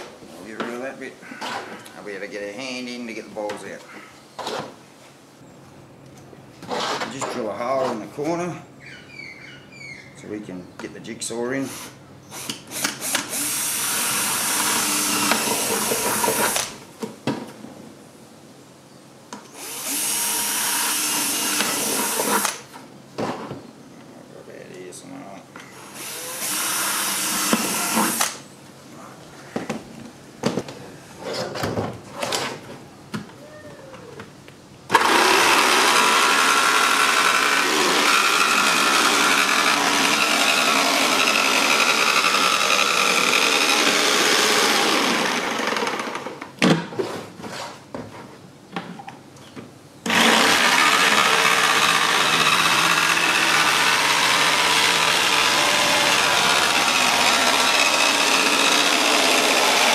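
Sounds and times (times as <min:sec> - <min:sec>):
cordless drill boring plastic: 0:19.6 - 0:22.6, 0:25.9 - 0:28.4, 0:34.9 - 0:46.3, 0:50.1 - 0:59.9
jigsaw cutting plastic: 0:19.7 - 0:22.6, 0:34.9 - 0:46.4, 0:50.1 - 0:59.9.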